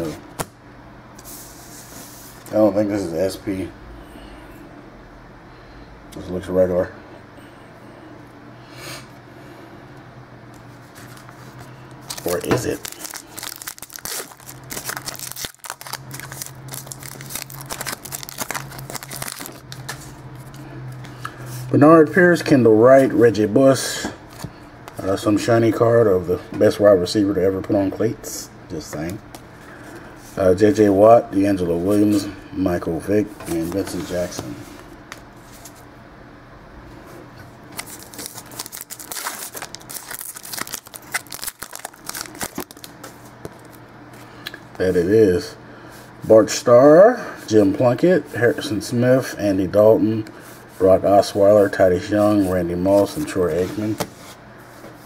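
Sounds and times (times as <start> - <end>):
steady low hum: 0.0 - 55.0
card pack wrapper crinkling and tearing: 12.0 - 20.1, 37.8 - 43.8.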